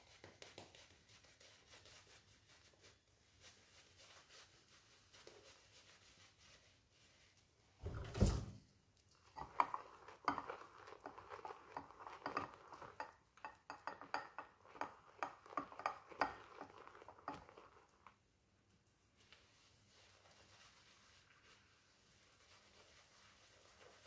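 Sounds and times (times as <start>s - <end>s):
shaving brush rubbing in bowl: 0.0s - 7.4s, 9.3s - 18.1s, 19.3s - 24.0s
thump: 7.8s - 8.6s.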